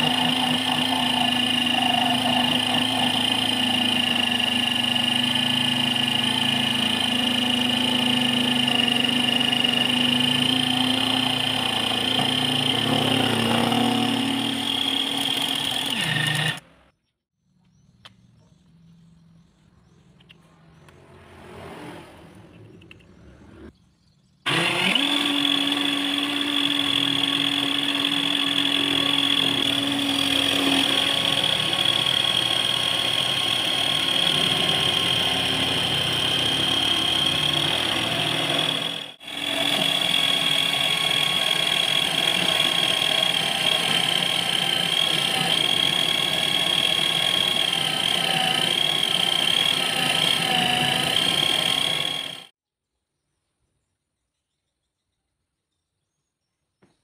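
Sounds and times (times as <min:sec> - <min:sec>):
lathe motor whine: 0:00.0 - 0:16.6, 0:24.5 - 0:52.5.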